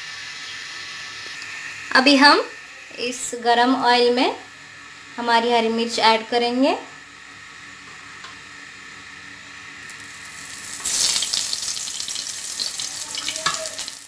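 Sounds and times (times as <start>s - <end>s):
chillies sizzling in hot oil: 0.0s - 1.7s, 9.8s - 14.0s.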